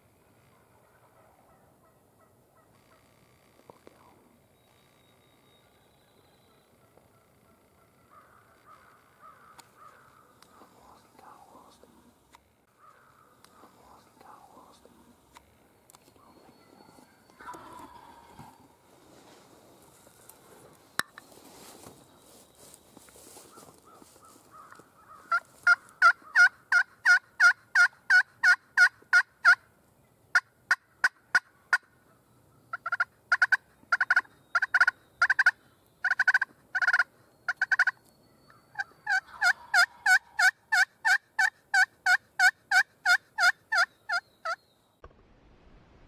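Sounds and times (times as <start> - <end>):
turkey yelping: 16.2 - 18.7, 23.4 - 29.6, 30.3 - 44.6.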